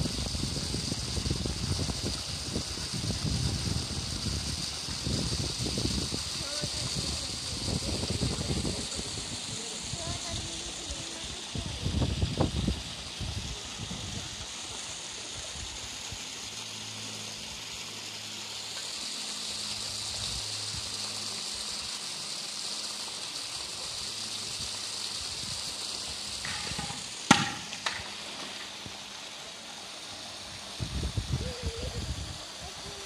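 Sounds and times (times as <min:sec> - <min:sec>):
water rushing: 0:00.0 - 0:33.0
sharp knock: 0:26.4 - 0:28.1.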